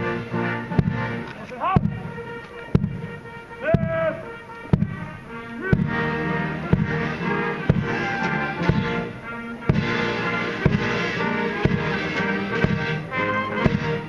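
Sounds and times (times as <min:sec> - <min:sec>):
military brass band playing a march: 0:00.0 - 0:14.0
bass drum striking: 0:00.7 - 0:01.2, 0:01.8 - 0:03.2, 0:04.7 - 0:05.1, 0:05.7 - 0:08.0, 0:08.6 - 0:09.0, 0:09.7 - 0:11.0, 0:11.6 - 0:12.0.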